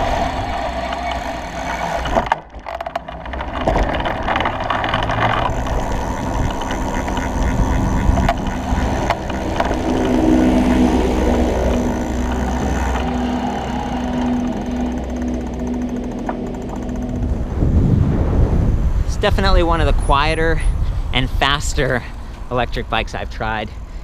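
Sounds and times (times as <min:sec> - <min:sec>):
bike knocking over bumps: 0:00.0 - 0:13.2
steady low hum: 0:00.0 - 0:24.0
wind and tyres rumbling on road: 0:00.0 - 0:24.0.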